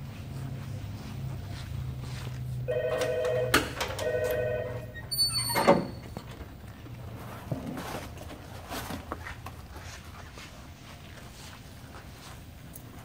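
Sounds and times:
telephone ringing: 2.7s - 5.1s.

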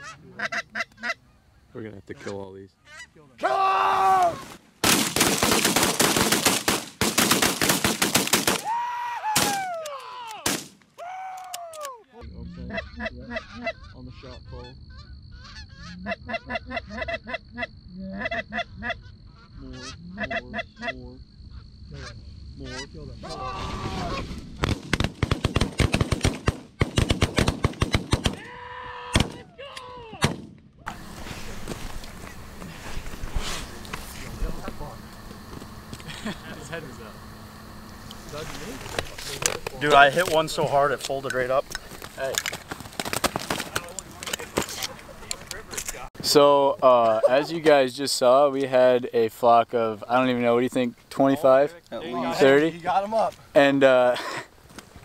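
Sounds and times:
geese honking: 0.0s - 3.4s, 12.2s - 24.3s
shotguns firing: 4.8s - 8.7s, 10.4s - 10.8s, 24.6s - 28.4s, 29.2s - 29.4s, 30.2s - 30.7s.

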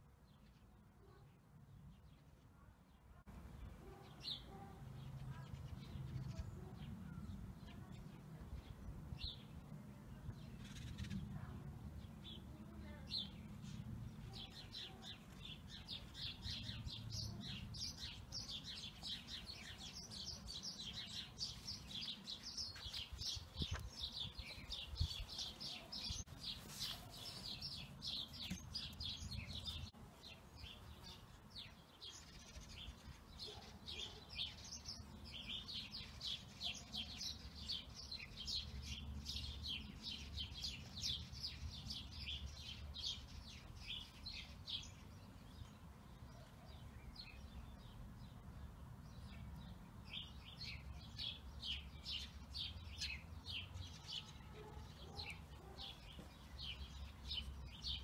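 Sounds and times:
small birds chirping: 0.1s - 58.0s.

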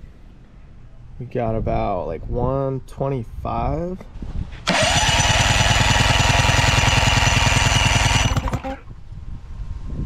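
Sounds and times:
outboard engine being turned over: 4.7s - 8.9s.

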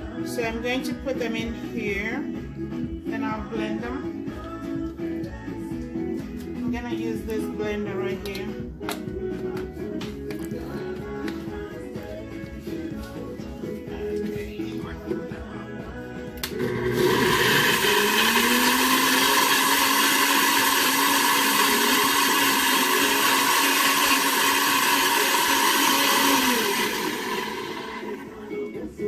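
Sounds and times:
blender pureeing: 16.3s - 28.8s
blender switch click: 16.4s - 16.8s.

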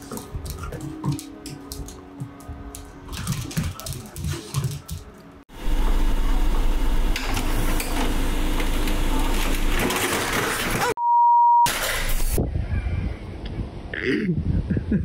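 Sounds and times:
electronic bleep: 11.0s - 11.7s.

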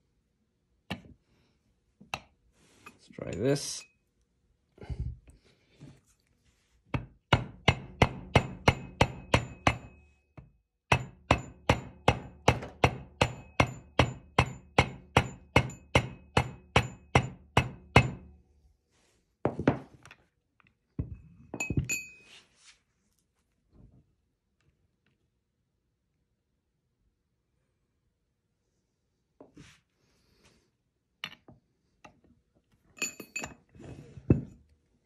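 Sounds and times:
mallet striking metal: 7.3s - 10.0s.

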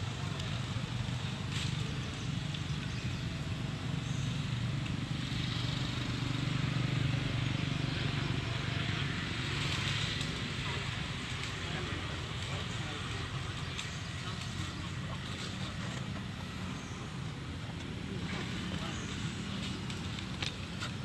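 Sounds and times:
continuous low hum: 0.0s - 21.0s.

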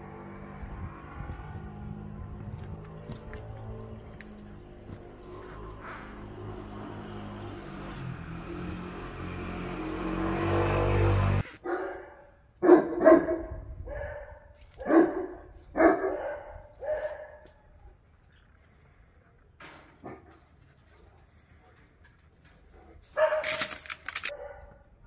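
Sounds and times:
dog barking: 11.6s - 17.7s, 20.0s - 20.4s, 22.9s - 23.6s, 24.3s - 24.9s.

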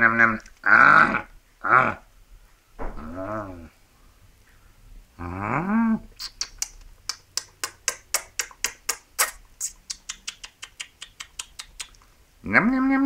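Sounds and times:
small sharp nibbling clicks: 6.2s - 12.1s.

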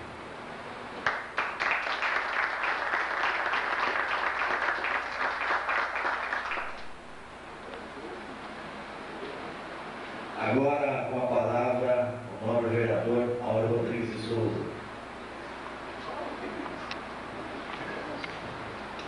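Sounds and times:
audience applauding: 1.0s - 6.9s.

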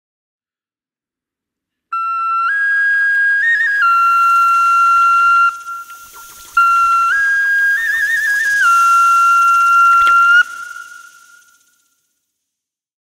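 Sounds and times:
solo flute melody: 1.9s - 12.0s.

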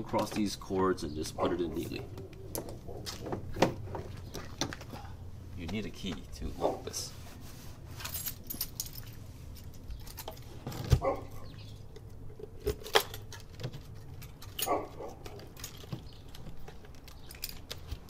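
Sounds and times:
keys jangling: 8.0s - 11.6s, 12.8s - 18.0s
hatch being shut and locked: 12.5s - 18.0s.

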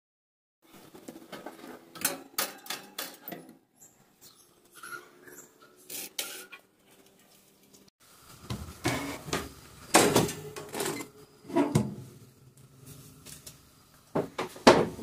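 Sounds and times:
metal pan scraping on wire rack: 10.2s - 12.1s.

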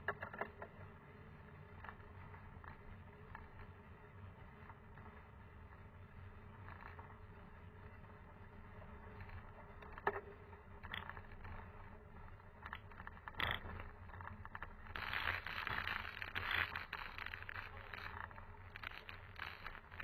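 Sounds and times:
sharp clicks and knocks: 0.0s - 0.9s, 9.8s - 11.6s
bike tyres rumbling on gravel: 1.4s - 20.0s.

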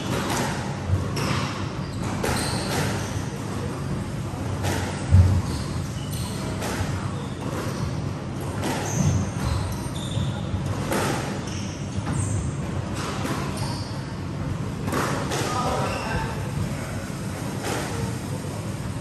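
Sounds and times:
squash ball struck by racquets: 0.0s - 3.2s, 4.4s - 5.5s, 6.3s - 13.6s, 14.8s - 15.8s
shoes squeaking on wooden floor: 1.2s - 3.2s, 8.6s - 10.6s, 11.3s - 12.5s, 13.3s - 14.0s.

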